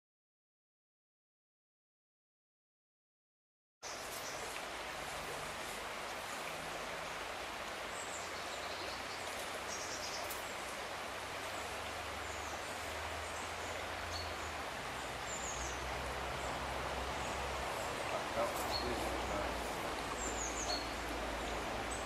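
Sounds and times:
stream rushing: 3.8 - 22.0.

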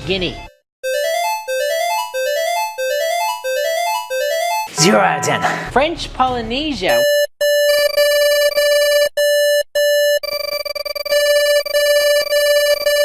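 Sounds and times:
electronic alert beep: 4.3 - 5.8.

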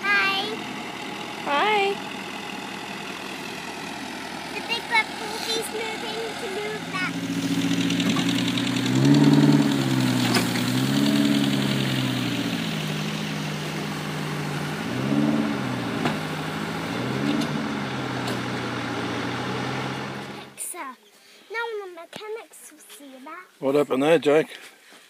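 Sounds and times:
engine revving: 0.0 - 20.6.

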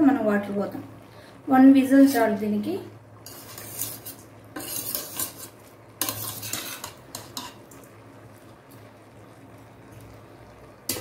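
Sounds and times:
spoon scraping pot bottom: 3.2 - 7.7.

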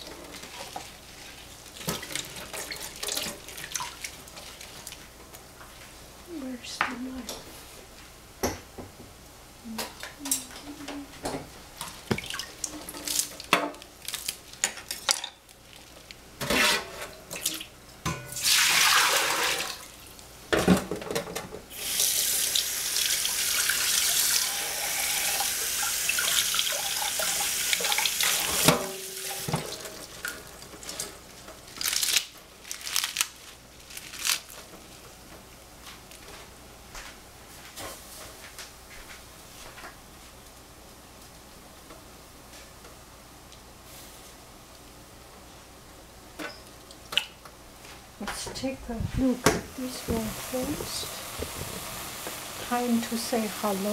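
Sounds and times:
water splashes and drips: 1.8 - 5.0, 12.0 - 13.5.

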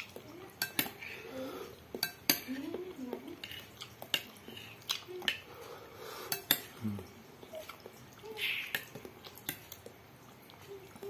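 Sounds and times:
soft eating sounds: 0.0 - 11.0
metal spoon clinking on glass bowl: 0.6 - 1.0, 2.0 - 2.6, 6.3 - 6.7.

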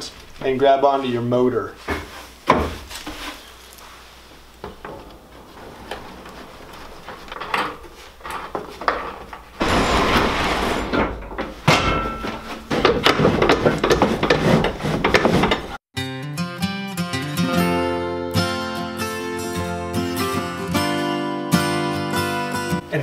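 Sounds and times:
scraping and clatter: 4.6 - 15.8.

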